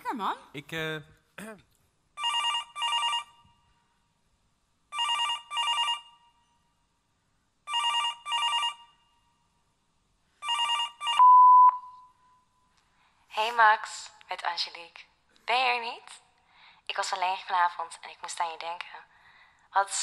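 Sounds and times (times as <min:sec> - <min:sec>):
telephone ringing: 0:02.2 - 0:03.4, 0:04.9 - 0:06.3, 0:07.7 - 0:09.0, 0:10.4 - 0:11.8
long steady beep: 0:10.5 - 0:12.5.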